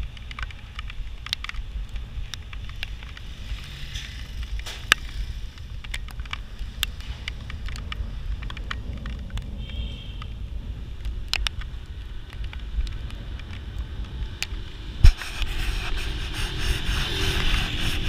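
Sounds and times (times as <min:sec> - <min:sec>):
bicycle clicks and rattles: 0:00.0 - 0:09.6
wind rumbling on microphone: 0:00.0 - 0:18.0
rushing noise: 0:14.8 - 0:18.0.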